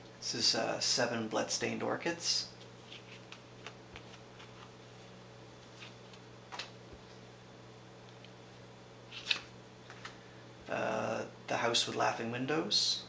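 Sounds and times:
faint steady hum: 0.0s - 13.0s
playing cards sliding: 2.6s - 7.2s, 9.1s - 10.2s.

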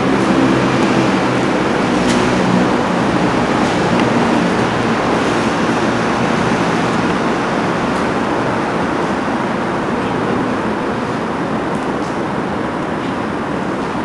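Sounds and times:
loud rushing noise: 0.0s - 14.0s.

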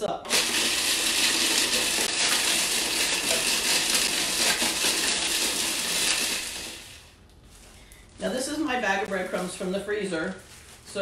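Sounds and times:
food processor grinding: 0.2s - 7.1s.

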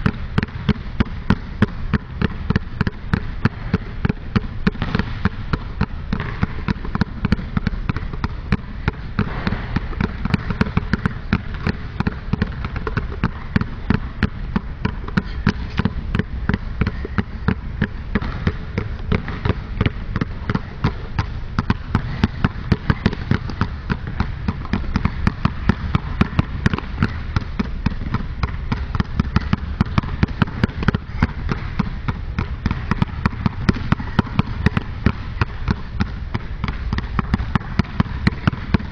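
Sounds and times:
balls bouncing on hardwood floor: 0.0s - 38.9s.

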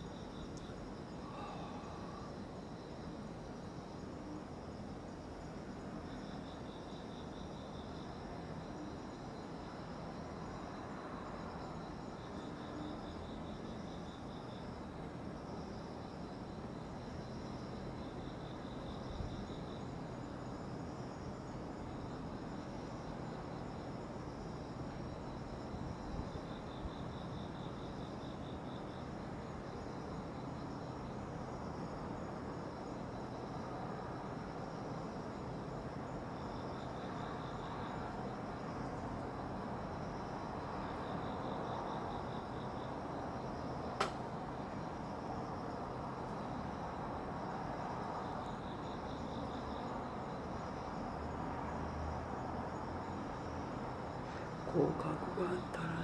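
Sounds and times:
insect pulsed trill: 0.0s - 56.0s
night insects chirping: 0.0s - 56.0s
low background hum: 53.2s - 56.0s.

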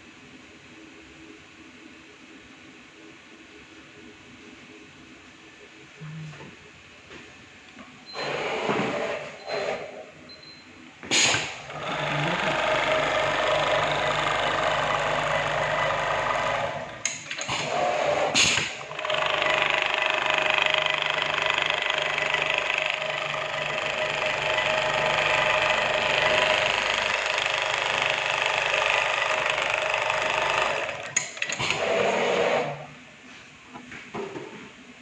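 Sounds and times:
sewing machine running: 11.4s - 32.9s.

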